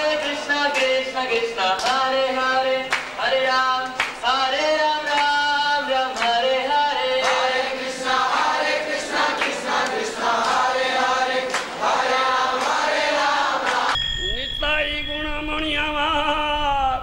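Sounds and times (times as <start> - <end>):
group singing in chorus: 0.0 - 14.0
sharp percussive strikes: 13.6 - 17.0.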